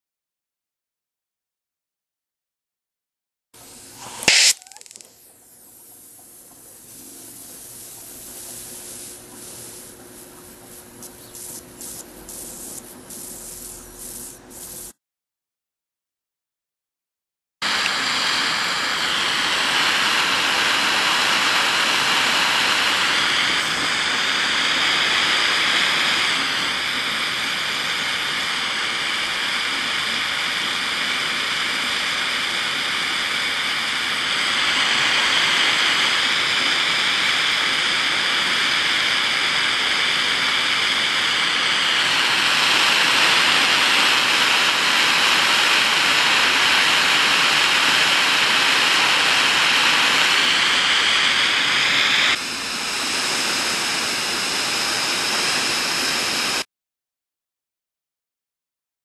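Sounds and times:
gas torch flames hissing: 3.6 - 15.0, 17.6 - 56.6
faint thin whistle: 4.1 - 5.0.

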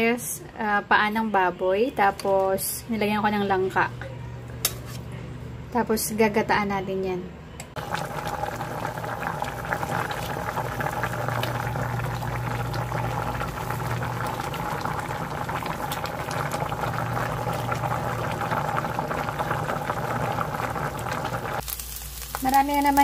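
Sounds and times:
stew bubbling at a boil: 7.8 - 21.6.

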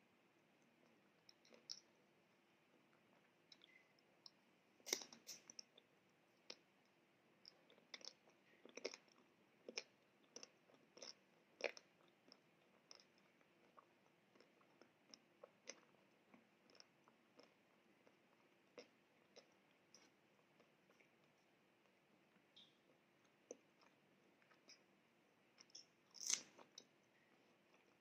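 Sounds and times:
crunchy chewing: 7.5 - 21.4, 25.6 - 28.0
ice cream coating cracking: 25.7 - 26.9.

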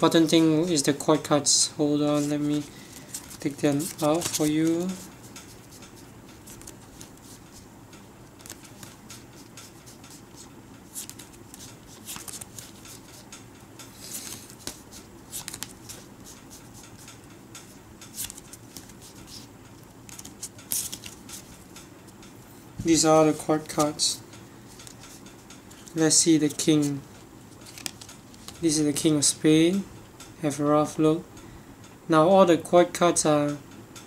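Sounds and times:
playing cards clicking and sliding: 2.0 - 7.7, 8.3 - 13.3, 13.9 - 22.2, 22.8 - 28.8.

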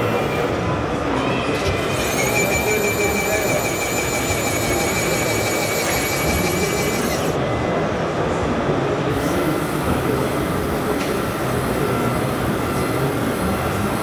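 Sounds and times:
busy exhibition hall din: 0.0 - 14.0
faint high whine: 1.9 - 7.4.

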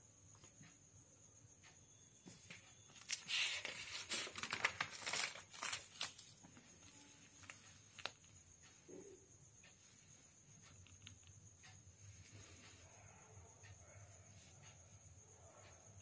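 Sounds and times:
paper pages turning: 3.0 - 6.4.

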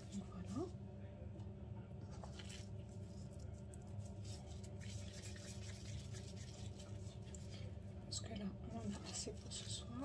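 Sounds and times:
steady low hum: 0.0 - 10.0
gloved hands squishing meat: 2.0 - 8.1.

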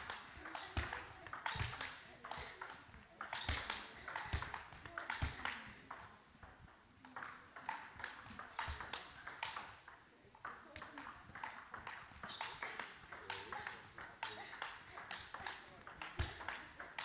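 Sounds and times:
table tennis ball clicking: 0.0 - 17.0.

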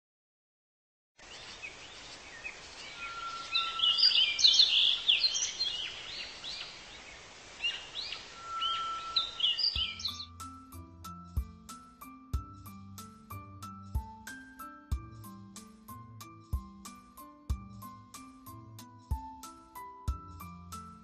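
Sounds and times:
birds singing and chirping: 1.2 - 10.5
faint outdoor hiss: 1.2 - 10.8
bird whistle: 2.8 - 5.9, 7.6 - 10.3.

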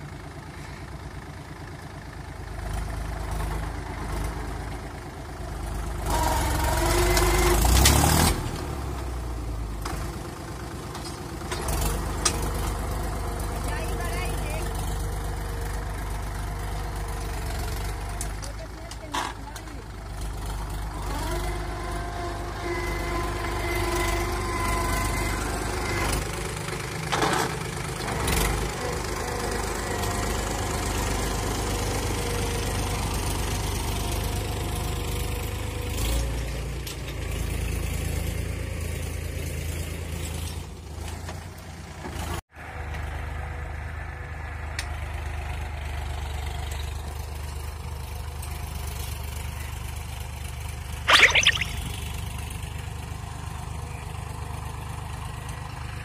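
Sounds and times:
tractor diesel engine running: 0.0 - 7.8, 8.7 - 33.2.

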